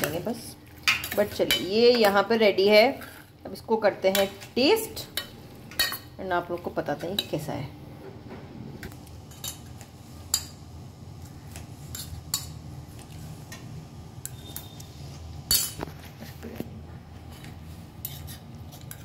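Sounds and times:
low hum: 7.7s - 9.3s.

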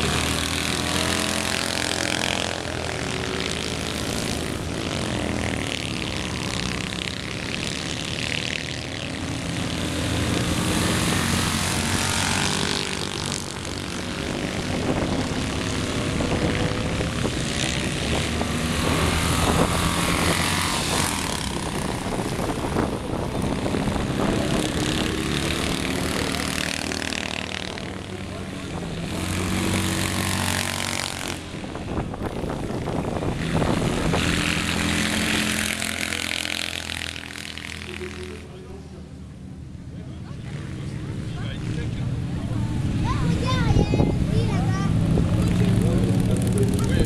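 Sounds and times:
race car engines buzzing: 0.0s - 47.0s.

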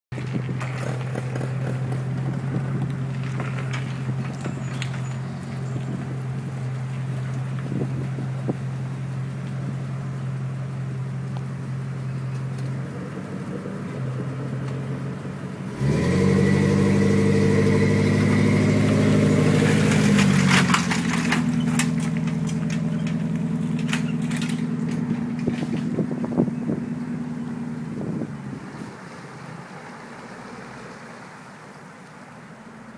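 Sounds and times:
outboard motor running: 0.2s - 29.0s.

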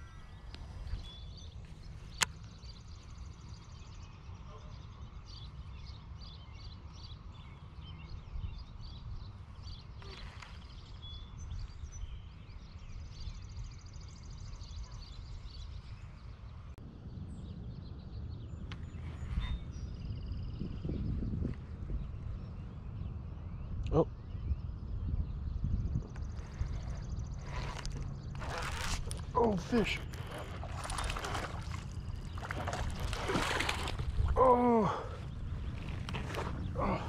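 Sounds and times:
birds chirping and singing: 17.4s - 37.0s.

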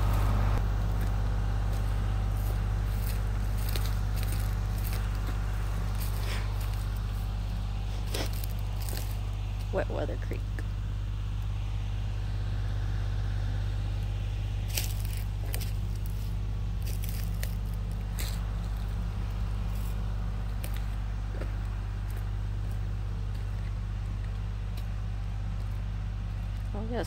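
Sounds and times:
tractor engine droning: 0.0s - 27.0s
twigs crackling and snapping: 1.0s - 9.7s, 14.0s - 24.9s.

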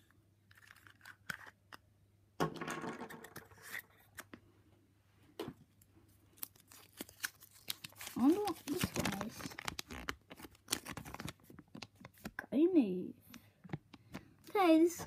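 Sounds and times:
plastic rustle: 6.6s - 12.3s.

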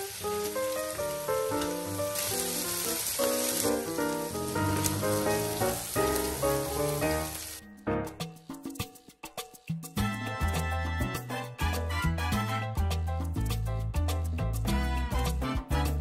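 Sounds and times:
clams sizzling in a hot pan: 0.0s - 7.6s
background music with plucked notes: 0.0s - 16.0s.

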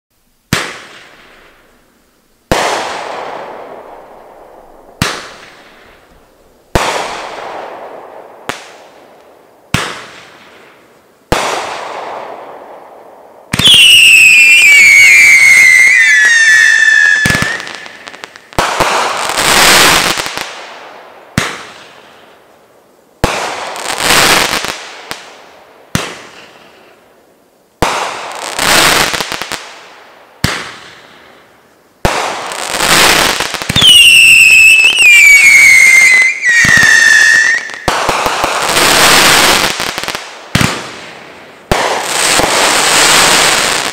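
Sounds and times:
dense firework crackling: 0.4s - 27.1s, 27.8s - 43.9s
firework bangs with crackle: 0.5s - 1.7s, 2.5s - 22.3s, 23.2s - 26.8s, 27.8s - 31.4s, 32.0s - 43.9s
whistling fireworks: 0.5s - 1.8s, 2.5s - 9.0s, 9.7s - 22.4s, 23.2s - 27.1s, 27.8s - 43.9s.

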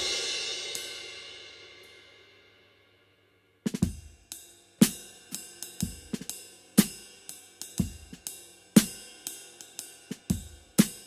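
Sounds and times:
drum kit slow groove: 0.0s - 1.1s, 3.7s - 11.0s.

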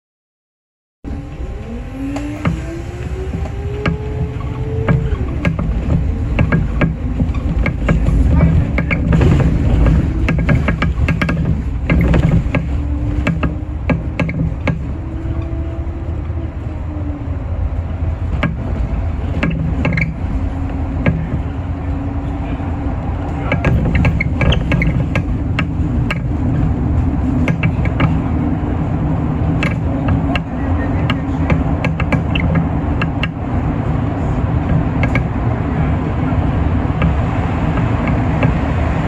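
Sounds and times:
bus drivetrain hum: 1.0s - 39.0s
interior fittings rattling: 2.4s - 15.8s, 18.2s - 33.6s.

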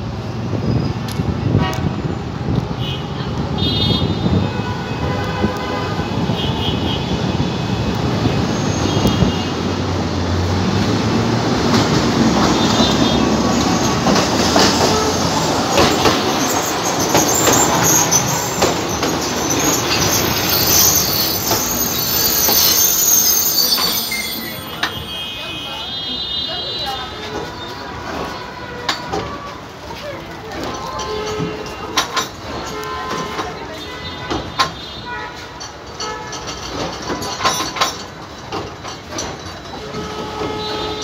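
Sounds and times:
tram wheels rumbling on rails: 0.0s - 41.0s
high wheel squeal: 12.5s - 28.4s.

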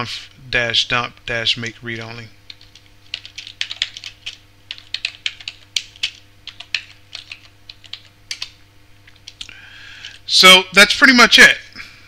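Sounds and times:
keyboard typing: 2.5s - 9.5s.

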